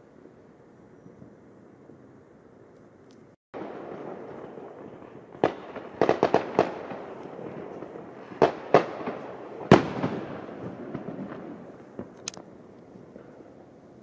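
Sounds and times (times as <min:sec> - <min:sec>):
fireworks bangs: 0:03.6 - 0:13.5.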